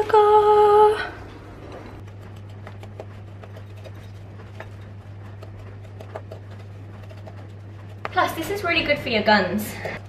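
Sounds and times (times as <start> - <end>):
steady low hum: 0.0 - 10.0
spoon scraping glass bowl: 2.4 - 8.8.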